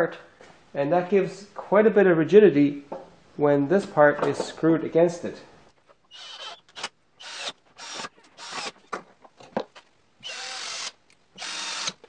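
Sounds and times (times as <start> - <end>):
cordless drill drilling into wood: 6.1 - 8.8, 10.2 - 12.0.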